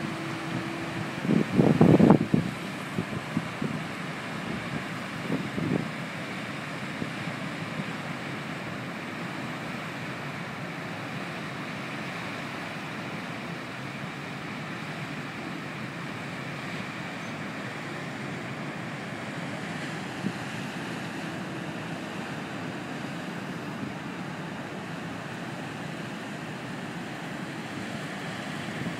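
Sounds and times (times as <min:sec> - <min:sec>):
wind buffeting microphone: 0:00.0 - 0:06.0
low ship rumble: 0:00.0 - 0:28.9
water rushing along ship hull: 0:00.0 - 0:28.9.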